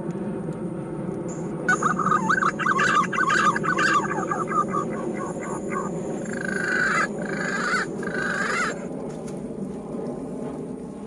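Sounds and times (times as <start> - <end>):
pigeon whistling calls: 1.7 - 8.8.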